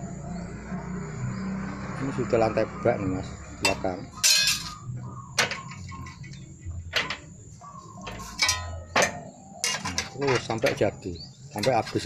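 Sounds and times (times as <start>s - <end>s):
metallic clanks of sheet metal brake: 8.1s - 10.8s.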